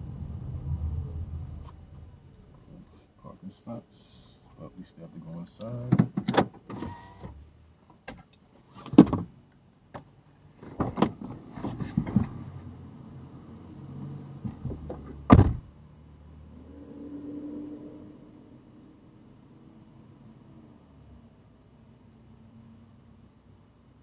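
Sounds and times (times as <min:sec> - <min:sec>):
clicks knocks and rustling in car: 0:05.6 - 0:12.5, 0:14.4 - 0:15.7
car door shutting: 0:10.6 - 0:12.4, 0:14.4 - 0:15.7.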